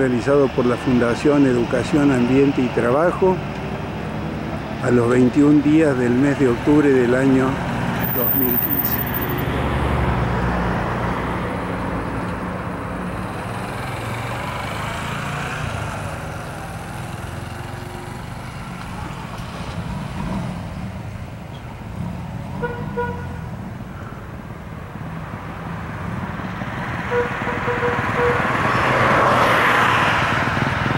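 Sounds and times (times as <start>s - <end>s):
road traffic rumble: 0.0s - 30.9s
vehicle passing close: 0.0s - 30.9s.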